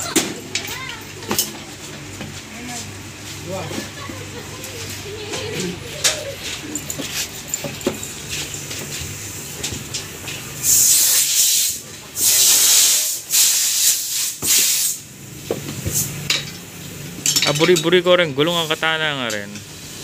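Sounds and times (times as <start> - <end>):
handling noise: 0.1 - 10.6
air hose hissing: 10.6 - 15.1, 15.8 - 16.2.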